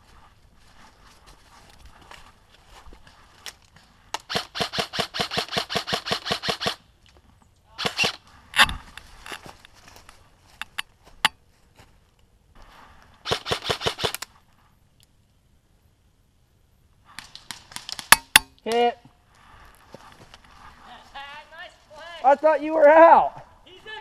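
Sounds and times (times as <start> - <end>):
airsoft rifle automatic fire: 4.3 - 6.8, 7.8 - 8.2, 13.3 - 14.2.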